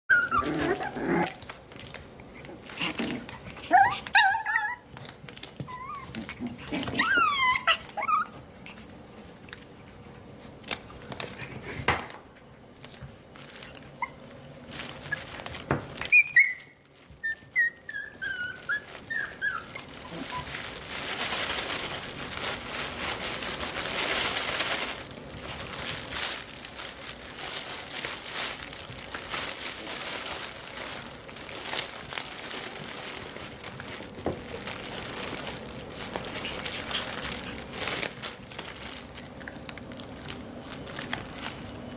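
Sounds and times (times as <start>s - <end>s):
puppies whining and yipping: 0.1s - 1.4s, 3.5s - 10.0s, 13.9s - 20.6s
fabric rustling and scuffling: 18.9s - 41.7s.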